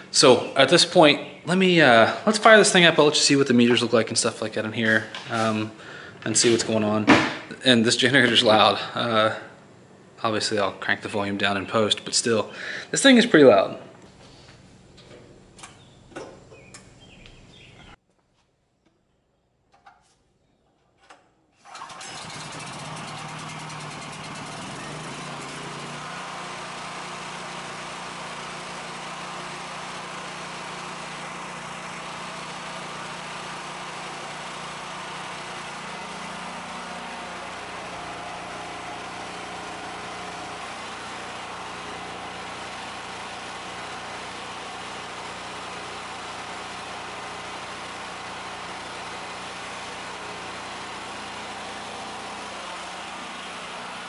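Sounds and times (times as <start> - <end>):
generator engine running: 0.0 - 7.5, 21.6 - 54.0.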